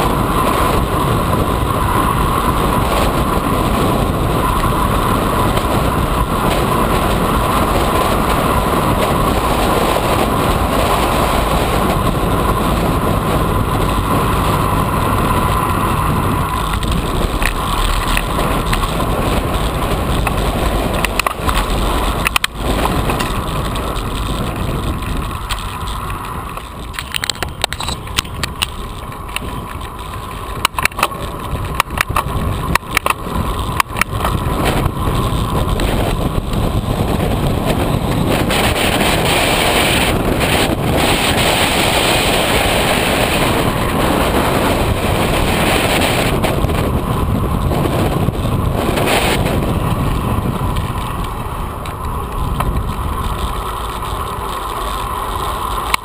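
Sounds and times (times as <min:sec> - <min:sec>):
tyre noise on pavement: 0:00.0 - 0:56.0
wind rushing over microphone: 0:00.0 - 0:56.0
sharp clicks and knocks: 0:16.4 - 0:36.7.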